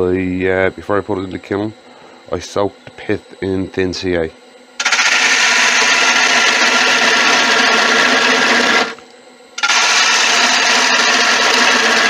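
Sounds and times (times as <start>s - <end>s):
gouge shaving wood on lathe: 4.8s - 9.0s, 9.6s - 12.0s.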